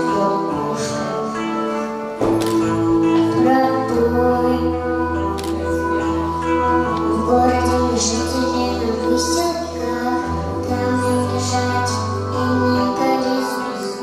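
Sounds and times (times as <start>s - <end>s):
instrumental accompaniment: 0.0s - 14.0s
woman singing: 0.0s - 14.0s.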